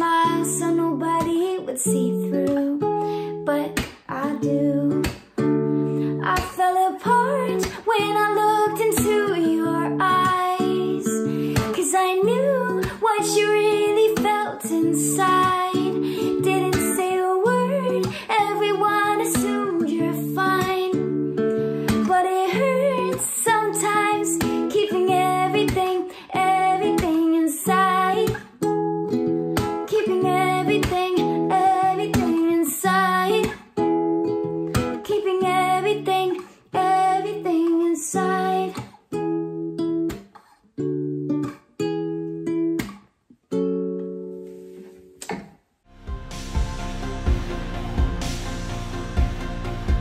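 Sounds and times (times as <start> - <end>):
person singing wordlessly: 0.0 - 5.1, 6.3 - 21.1, 21.9 - 28.4, 29.9 - 33.5
acoustic guitar picked chords: 0.0 - 45.3, 45.9 - 50.0.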